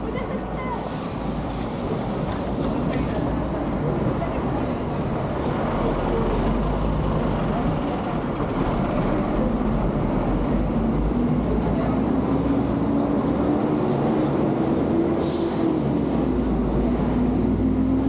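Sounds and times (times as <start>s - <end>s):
large vehicle engine hum: 0.0s - 18.0s
street traffic: 0.0s - 18.0s.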